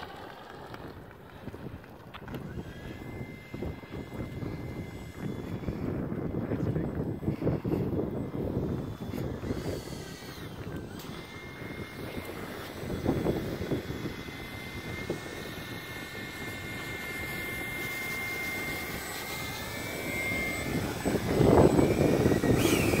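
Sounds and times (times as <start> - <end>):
electric ducted fan whining: 0.0 - 23.0.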